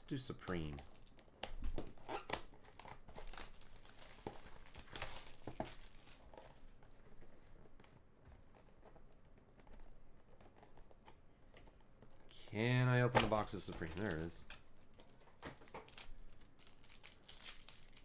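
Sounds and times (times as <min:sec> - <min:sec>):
plastic shrink wrap crinkling: 0:00.2 - 0:08.0, 0:13.0 - 0:18.0.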